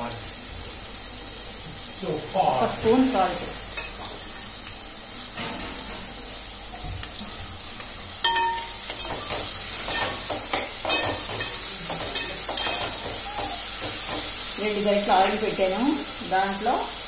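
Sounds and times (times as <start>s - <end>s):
onions sizzling in oil: 0.0s - 17.0s
spoon scraping a pot: 8.3s - 14.4s.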